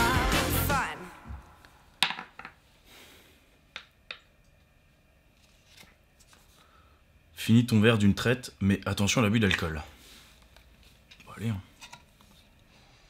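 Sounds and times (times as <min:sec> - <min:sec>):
background music: 0:00.0 - 0:01.6.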